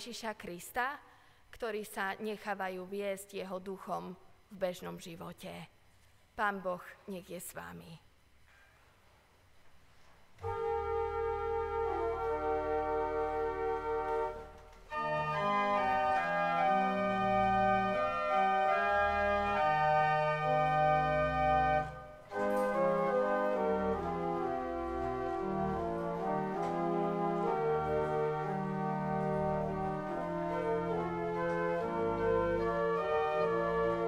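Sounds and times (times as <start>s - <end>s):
pipe organ playing a hymn: 10.4s - 34.0s.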